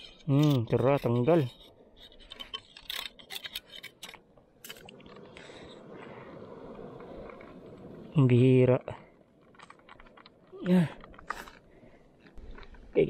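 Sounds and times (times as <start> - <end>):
shell scraping against rock: 0.0 - 5.6, 9.3 - 12.9.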